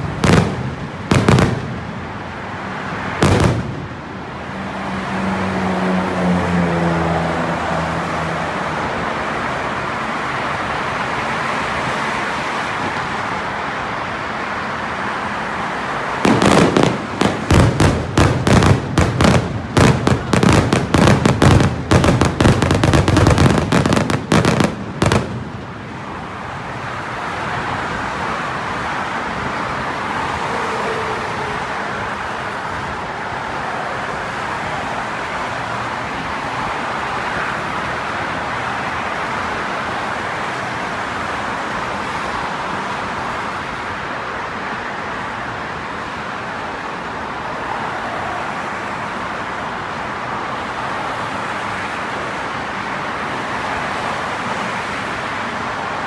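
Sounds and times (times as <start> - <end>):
rapid firework bangs: 0.0 - 1.9, 3.2 - 3.9, 16.2 - 25.6
steady rushing noise: 8.8 - 30.7.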